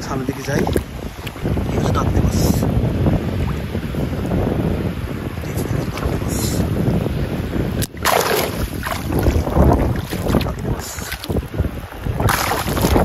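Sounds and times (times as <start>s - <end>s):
water splashing: 0.0s - 1.9s, 7.8s - 13.0s
wind rumbling on microphone: 0.0s - 13.0s.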